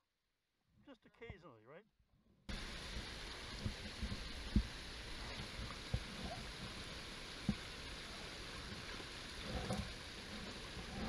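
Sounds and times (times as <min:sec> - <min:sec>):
dull low knocks: 0:02.5 - 0:06.8
creek rushing over stones: 0:02.5 - 0:11.0.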